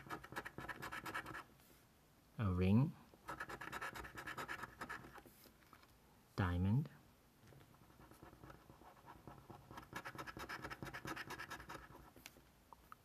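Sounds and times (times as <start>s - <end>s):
coin scratching lottery ticket: 0.0s - 1.4s, 3.3s - 5.2s, 8.1s - 12.1s.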